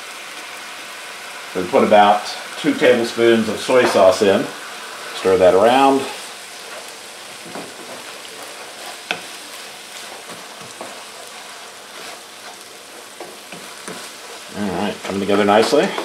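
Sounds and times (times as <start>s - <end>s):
food sizzling in a skillet: 0.0s - 16.0s
wooden spoon scraping and knocking pan: 3.7s - 4.4s, 5.1s - 16.0s.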